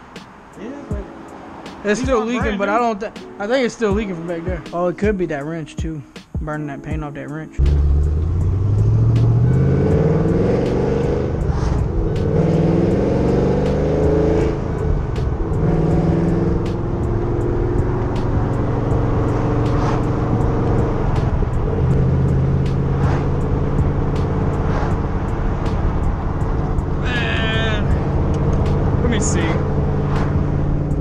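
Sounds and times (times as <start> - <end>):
car engine accelerating: 7.6 - 31.0.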